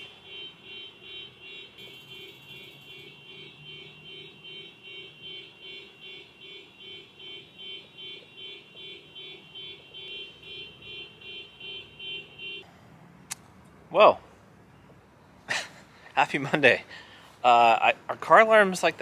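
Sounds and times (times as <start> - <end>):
car alarm beeping: 0.0 - 12.6.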